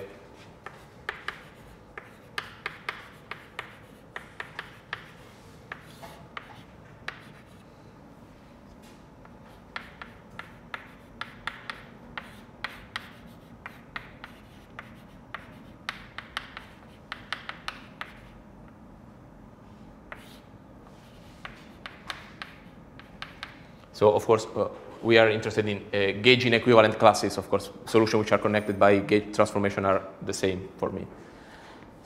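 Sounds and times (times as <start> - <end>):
chalk tapping and scratching on blackboard: 0.5 - 7.6, 9.2 - 18.4, 20.1 - 23.6.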